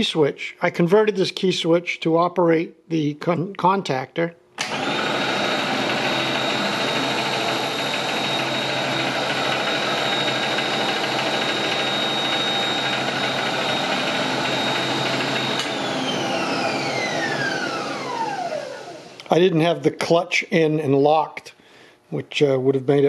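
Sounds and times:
electric motor whining: 4.6 - 19.2
motor spinning down: 4.6 - 19.2.

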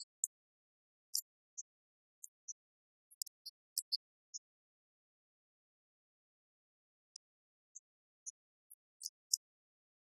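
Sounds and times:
faint high-pitched chirps: 0.0 - 10.0.

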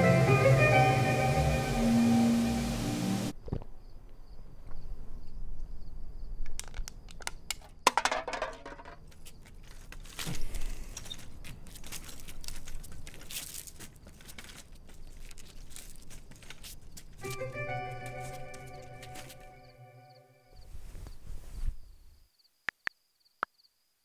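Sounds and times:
walker clicking and scraping: 6.5 - 17.4.

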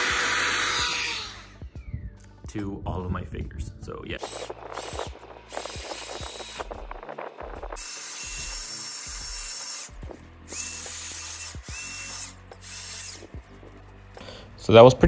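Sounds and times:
electric air duster blowing: 0.0 - 1.6, 4.2 - 14.2
motor whine: 0.0 - 1.7, 4.2 - 14.1.

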